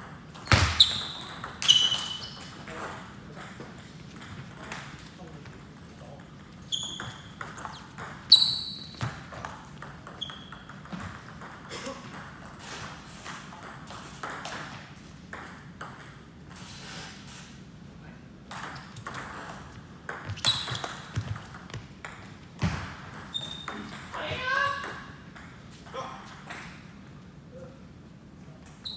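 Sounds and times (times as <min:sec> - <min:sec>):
table tennis ball hits: 0:00.0 - 0:12.5, 0:13.6 - 0:16.2, 0:18.5 - 0:24.2.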